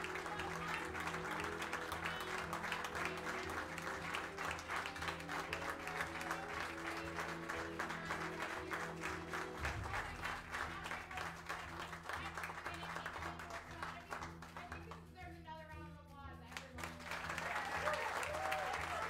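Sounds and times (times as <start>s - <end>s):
slow chord music: 0.0s - 10.6s
light applause: 0.0s - 15.2s, 16.5s - 19.0s.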